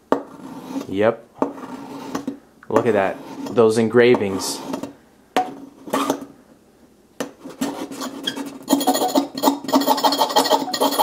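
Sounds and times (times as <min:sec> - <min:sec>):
knife scraping metal: 0:00.3 - 0:00.9, 0:01.5 - 0:04.9, 0:05.8 - 0:06.3, 0:07.4 - 0:11.0.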